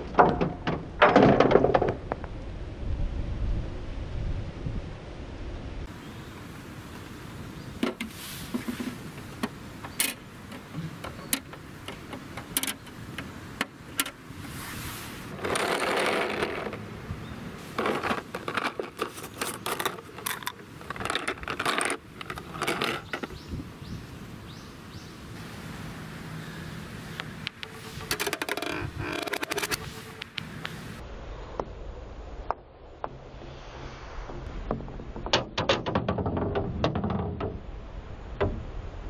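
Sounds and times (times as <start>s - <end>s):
scraping rattle: 15.3s - 16.9s, 17.6s - 23.5s, 27.5s - 30.4s.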